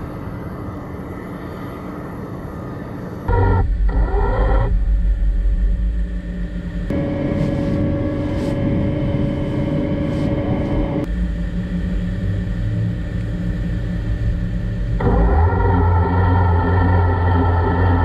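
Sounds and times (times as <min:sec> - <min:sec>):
two-tone hum inside cab: 0:00.0 - 0:18.0
vehicle engine and pump running: 0:03.3 - 0:18.0.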